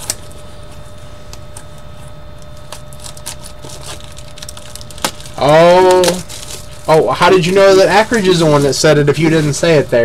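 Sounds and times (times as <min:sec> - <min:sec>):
faint steady hum: 0:00.0 - 0:10.0
card packs clicking and tapping: 0:02.6 - 0:08.8.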